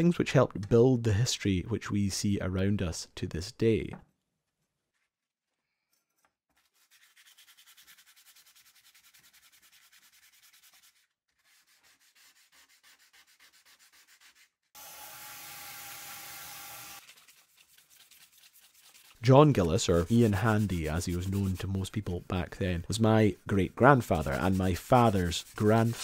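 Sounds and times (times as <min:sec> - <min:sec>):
hand sanding strokes on metal: 0:06.6 - 0:22.2, 0:22.9 - 0:26.0.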